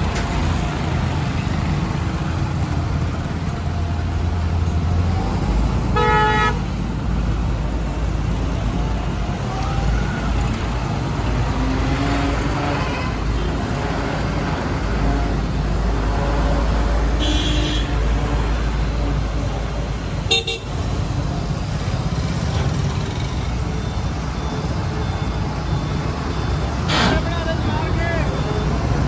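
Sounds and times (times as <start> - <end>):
road traffic: 0.0 - 29.0
vehicle horn toots: 6.0 - 6.6, 17.2 - 18.0, 20.3 - 20.7.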